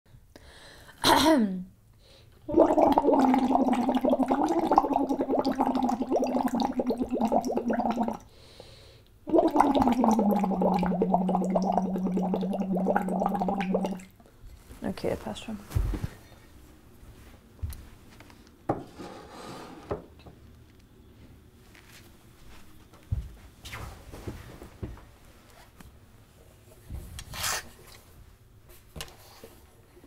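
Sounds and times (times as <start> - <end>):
voice bubbling through straw in water: 2.5 - 8.3, 9.3 - 14.1.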